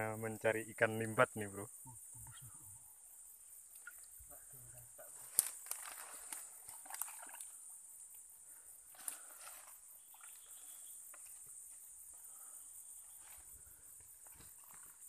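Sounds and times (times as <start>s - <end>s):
pulsing insect chorus: 0.0s - 15.0s
rustling of brush: 5.1s - 7.4s, 13.0s - 15.0s
twigs snapping: 5.3s - 7.5s.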